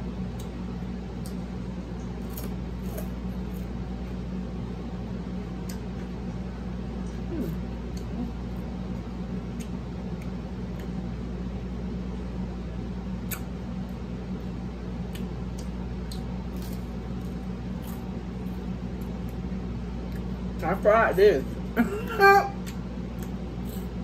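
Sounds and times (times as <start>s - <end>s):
steady low hum: 0.0s - 24.0s
crunchy chewing: 0.3s - 4.2s, 15.0s - 20.3s, 22.6s - 24.0s.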